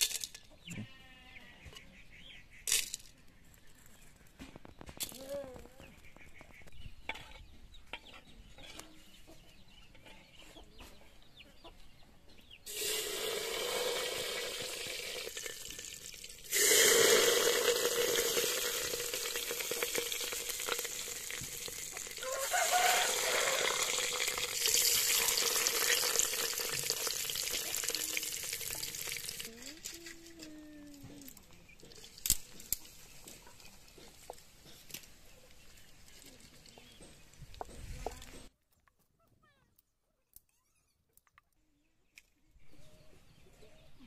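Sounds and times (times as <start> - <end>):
hot oil sizzling in a pot: 12.7 - 29.5.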